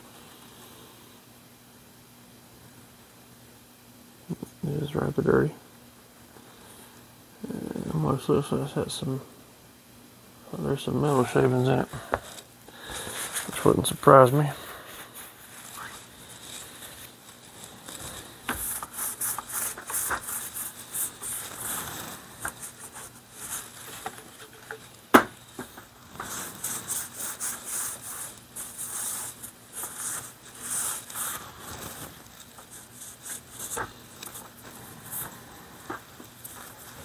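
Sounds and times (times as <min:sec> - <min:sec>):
cloth rubbing on metal: 0:13.0 - 0:37.0.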